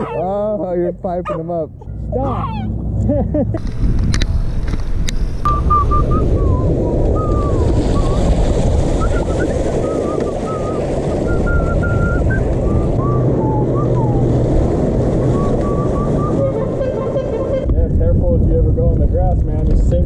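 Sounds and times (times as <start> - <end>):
wind on microphone: 2.1 - 20.0
bicycle tyres splashing through water: 6.7 - 12.9.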